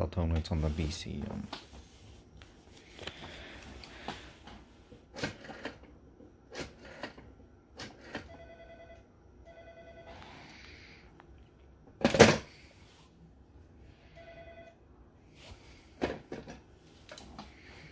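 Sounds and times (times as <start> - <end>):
rotary dial whirring back: 3.0 - 8.9.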